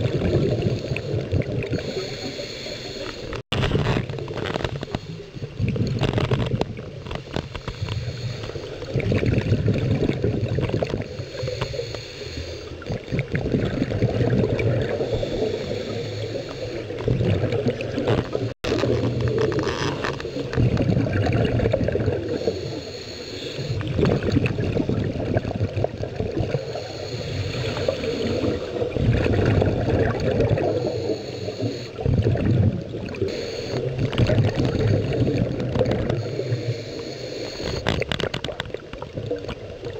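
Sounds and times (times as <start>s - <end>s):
diver breathing through regulator: 0.1s - 3.4s, 7.5s - 8.9s, 11.0s - 12.9s, 14.8s - 17.1s, 19.0s - 21.0s, 22.1s - 24.0s, 26.5s - 28.9s, 30.6s - 32.0s, 33.2s - 37.9s.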